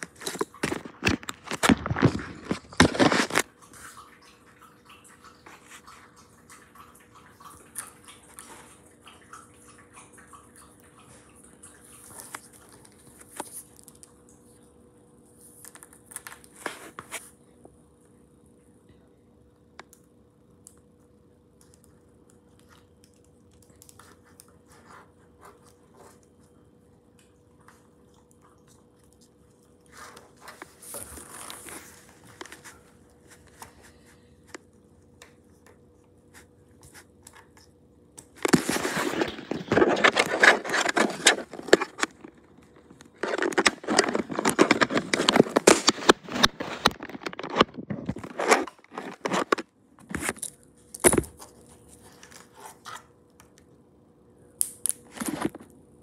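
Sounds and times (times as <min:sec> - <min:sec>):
plastic scraping and crackling: 0:00.0 - 0:03.5, 0:29.0 - 0:35.8, 0:38.2 - 0:53.1, 0:54.9 - 0:55.7
faint steady hum: 0:00.0 - 0:56.0.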